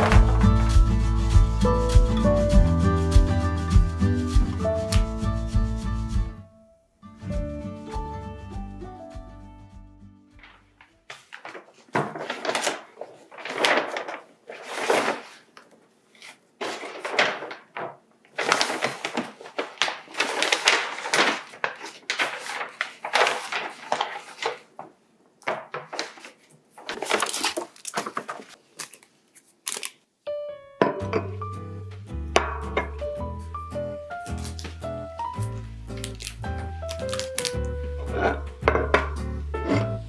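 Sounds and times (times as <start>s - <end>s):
paper bag rustling: 0.0s - 0.8s, 10.4s - 30.0s, 34.2s - 40.0s.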